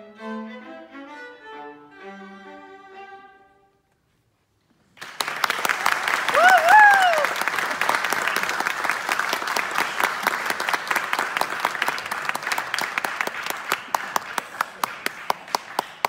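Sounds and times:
audience applauding: 4.9s - 16.0s.

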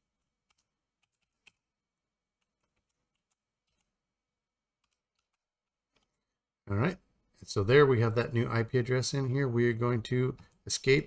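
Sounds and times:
faint keyboard keystrokes: 2.4s - 4.0s, 4.8s - 6.2s.

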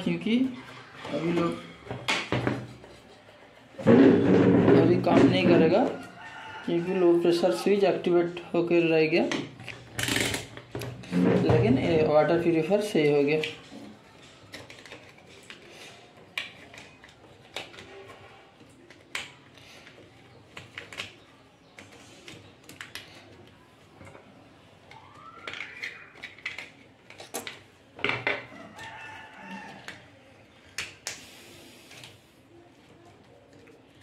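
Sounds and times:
rooster crowing: 5.7s - 7.3s, 28.5s - 30.0s.

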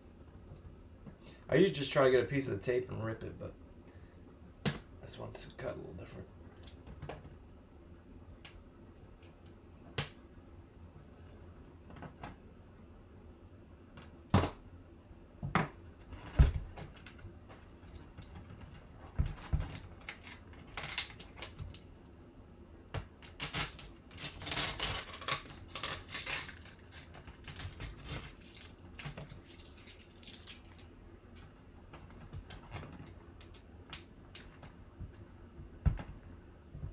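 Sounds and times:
tape tearing and crinkling: 19.4s - 21.8s, 23.2s - 30.8s.

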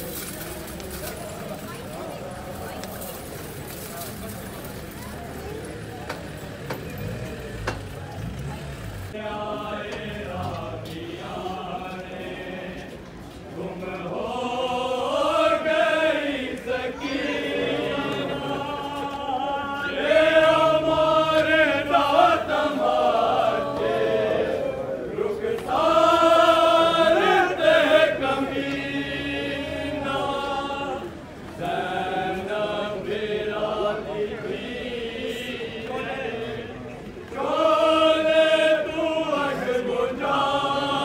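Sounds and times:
men chanting a lament: 9.1s - 41.0s.

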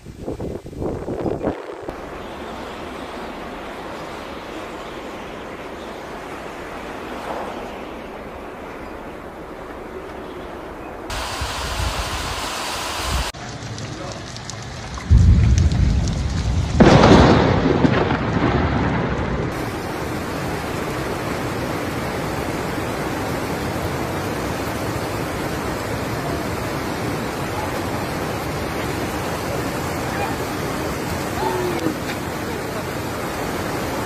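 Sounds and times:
floodwater rushing across road: 11.1s - 18.1s, 19.5s - 34.0s
loud booms with rumble: 15.0s - 19.6s.

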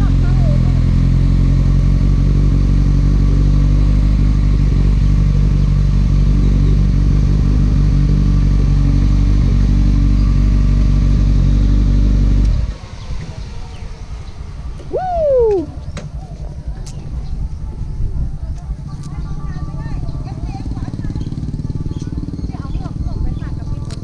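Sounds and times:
motorcycle engine idling: 0.0s - 24.0s.

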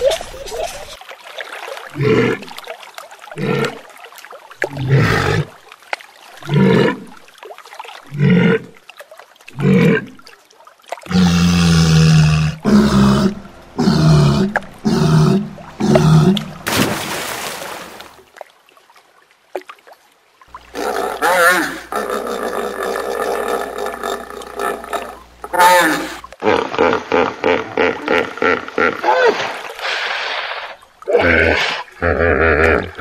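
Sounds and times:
breathy hiss: 11.1s - 16.7s, 29.6s - 31.9s.

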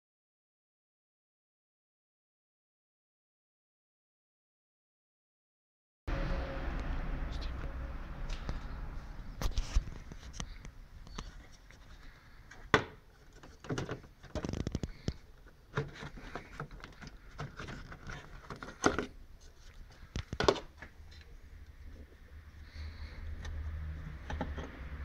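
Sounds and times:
plastic clicks and knocks: 20.1s - 20.9s.

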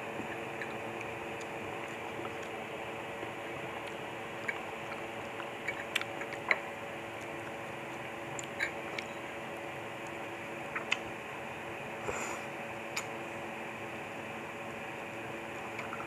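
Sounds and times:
wet eating sounds: 0.1s - 9.1s, 10.1s - 11.1s.

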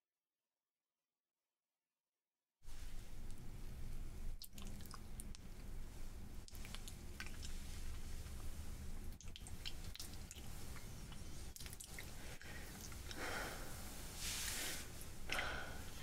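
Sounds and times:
breathy exhales: 12.3s - 16.0s.

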